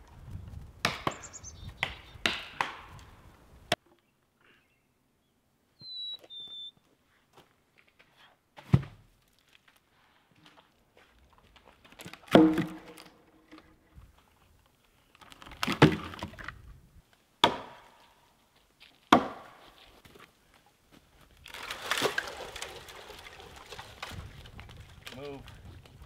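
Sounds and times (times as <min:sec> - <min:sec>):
axe chopping into tree: 0:00.8 - 0:01.2, 0:01.8 - 0:02.9, 0:12.3 - 0:13.1, 0:17.4 - 0:17.9, 0:19.1 - 0:19.6
tree splintering and crackling: 0:21.2 - 0:26.0.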